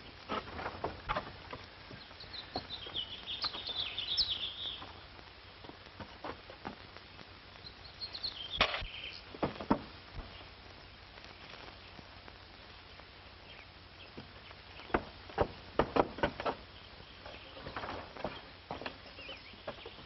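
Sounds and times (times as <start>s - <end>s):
film soundtrack hiss and hum: 0.0s - 20.0s
sharp knocks: 14.9s - 16.6s.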